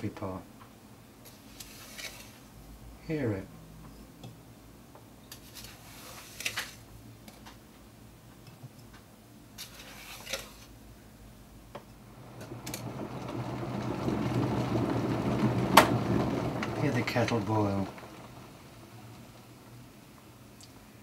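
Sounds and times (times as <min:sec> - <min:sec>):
electric kettle rumble: 0:11.8 - 0:20.5.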